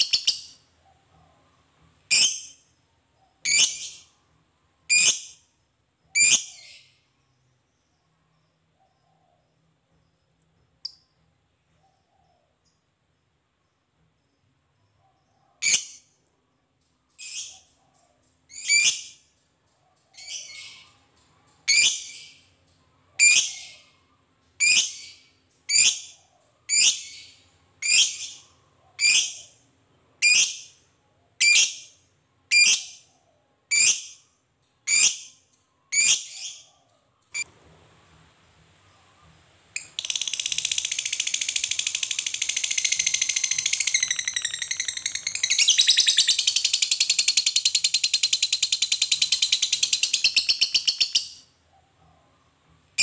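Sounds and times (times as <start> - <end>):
lovebird high-pitched calls: 0.0 - 0.6, 2.1 - 2.7, 3.3 - 4.2, 4.9 - 5.5, 6.1 - 7.0, 15.6 - 16.1, 17.2 - 17.8, 18.5 - 19.2, 20.1 - 22.4, 23.2 - 24.0, 24.6 - 29.6, 30.2 - 30.8, 31.4 - 33.1, 33.7 - 34.2, 34.8 - 36.7, 39.8 - 51.5.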